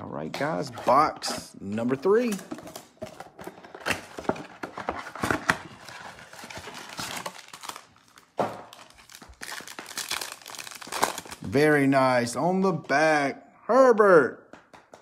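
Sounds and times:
plastic wrappers crinkling: 2.1 - 11.6
wrapper pulled apart crackling: 6.4 - 11.4.

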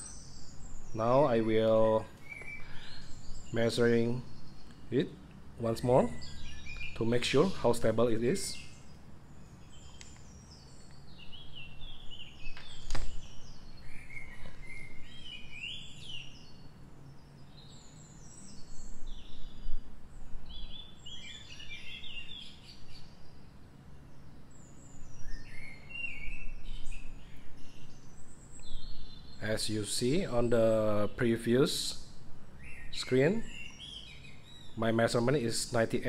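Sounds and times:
small birds chirping: 0.0 - 36.0
sharp click: 12.5 - 13.2.

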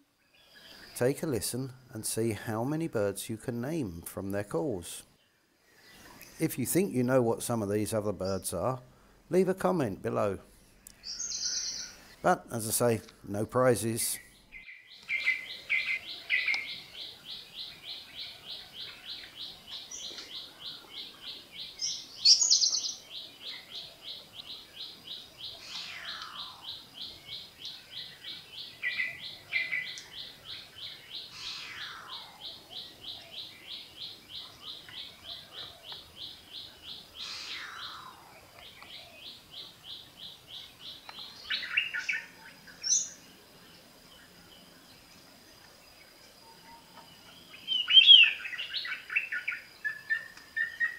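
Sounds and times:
descending whistled bird calls: 11.0 - 12.3, 14.0 - 43.4, 46.4 - 50.9.

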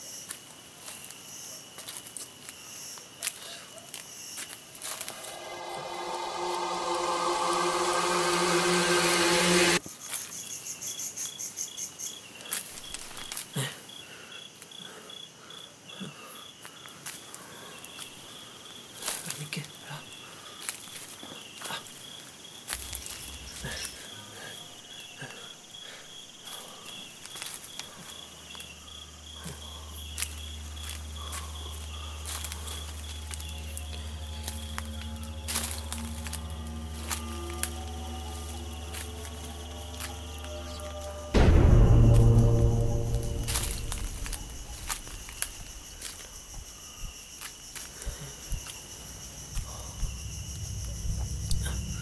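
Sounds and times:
crickets chirping: 0.0 - 52.0
low steady hum: 5.0 - 9.8, 29.8 - 46.0
short loud musical sound: 5.0 - 9.8, 30.6 - 45.7.

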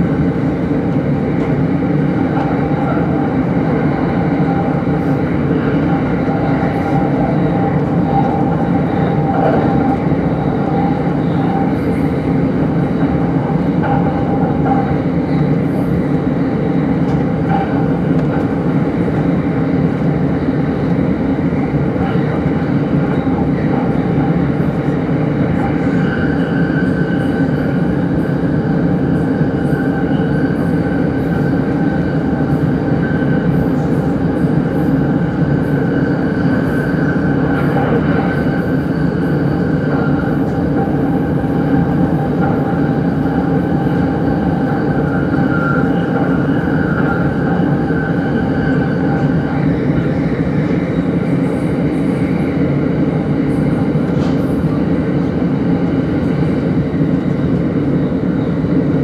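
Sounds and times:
train rumble inside car: 0.0 - 59.0.

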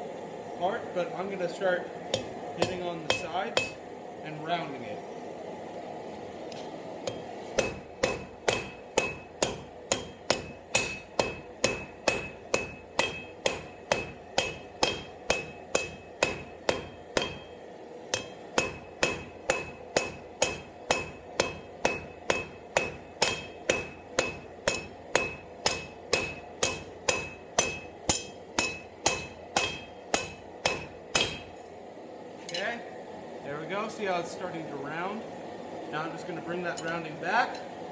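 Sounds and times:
hammer striking steel on anvil: 2.1 - 3.9, 7.0 - 31.7, 36.7 - 37.7.

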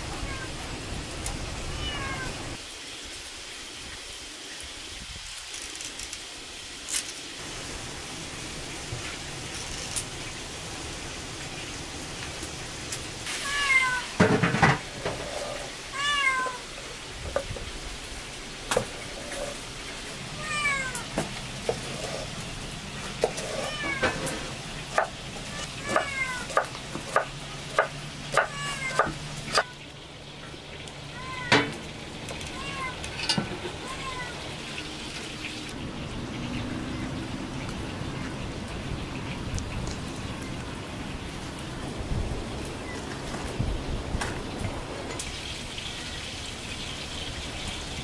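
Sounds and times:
cat meowing: 0.1 - 0.6, 1.7 - 2.5, 13.3 - 14.2, 15.9 - 16.8, 20.4 - 21.1, 23.4 - 24.3, 25.5 - 26.6, 28.4 - 29.8, 31.1 - 31.8, 32.5 - 33.1, 33.8 - 34.4.

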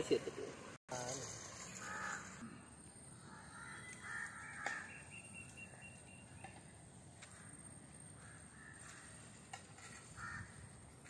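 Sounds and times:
faint outdoor background: 0.0 - 11.0
crow cawing: 1.8 - 2.6, 3.2 - 5.0, 8.2 - 10.8.

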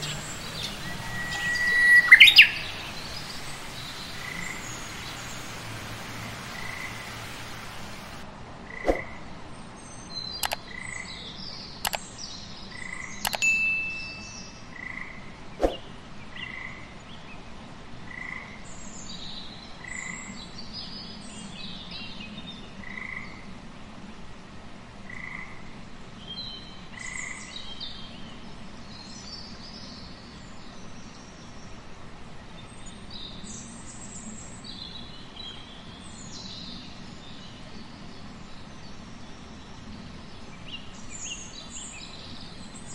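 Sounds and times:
higher frog chirps: 0.0 - 8.2
sharp clicking frog calls: 0.0 - 8.2, 10.4 - 11.0, 12.8 - 13.4.

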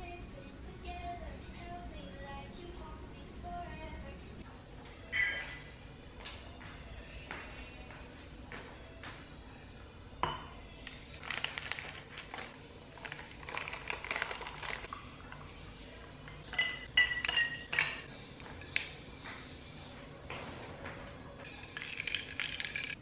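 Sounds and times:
sachet tearing: 11.1 - 14.9
ice cubes clinking into glass: 21.6 - 23.0.

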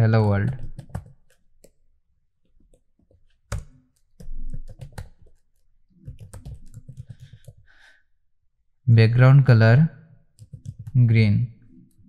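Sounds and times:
keyboard typing clicks: 10.4 - 11.0.

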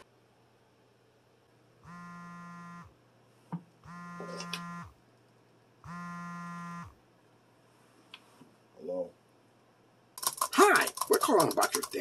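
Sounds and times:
phone vibrating buzzes: 1.8 - 3.0, 3.8 - 5.0, 5.8 - 7.0.

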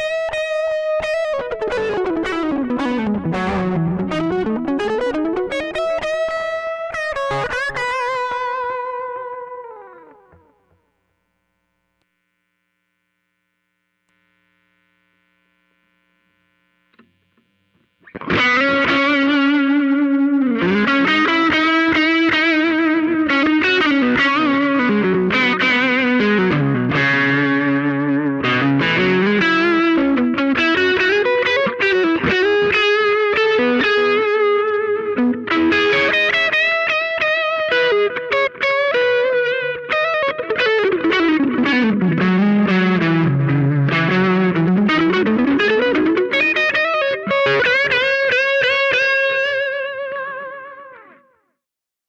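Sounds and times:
distorted electric guitar: 0.0 - 51.4
small click: 16.9 - 17.9.

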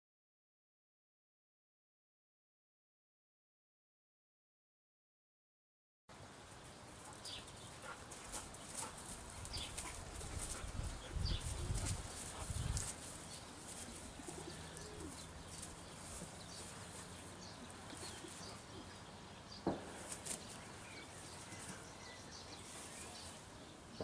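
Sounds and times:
birds chirping: 6.2 - 24.0.

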